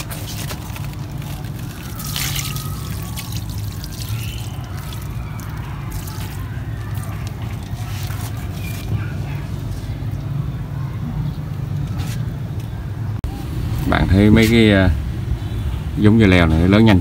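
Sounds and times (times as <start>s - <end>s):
liquid splashing onto soil: 0.0s - 8.9s.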